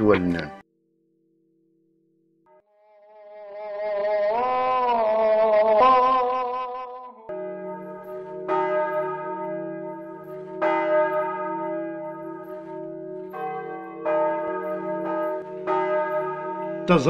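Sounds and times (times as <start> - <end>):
bells tolling: 7.3 - 17.0.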